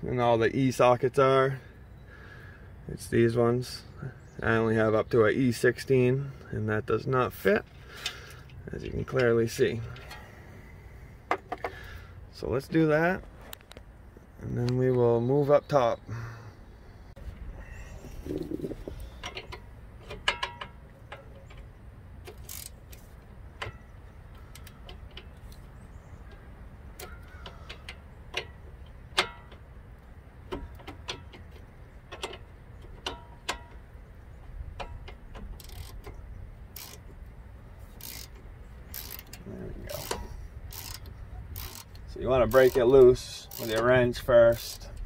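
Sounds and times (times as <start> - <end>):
ratcheting wrench clicking on bolts: 18.4 - 25.7, 26.3 - 29.7, 30.4 - 33.9, 34.7 - 37.2, 37.9 - 45.0.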